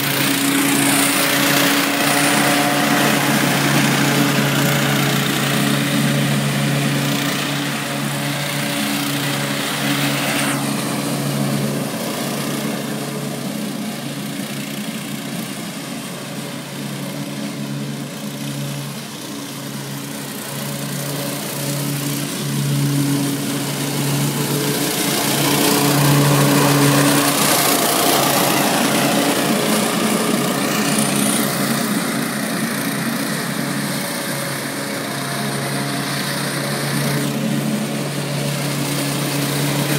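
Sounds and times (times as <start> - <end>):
lawn mower engine running: 0.0 - 39.9.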